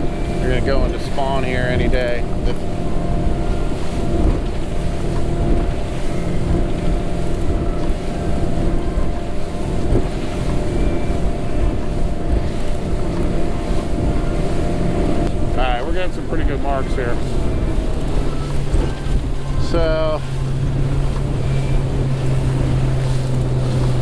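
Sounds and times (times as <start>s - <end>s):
outboard engine drone: 0.0s - 24.0s
water rushing past hull: 0.0s - 24.0s
wind on microphone: 0.0s - 24.0s.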